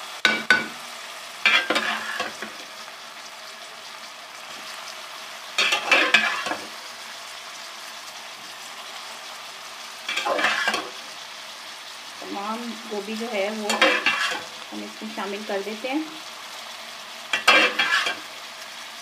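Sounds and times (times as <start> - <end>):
pan sizzling: 0.0 - 19.0
stirring in a pan: 1.4 - 2.7, 5.4 - 7.1, 9.8 - 12.5, 13.2 - 14.7, 16.6 - 18.4.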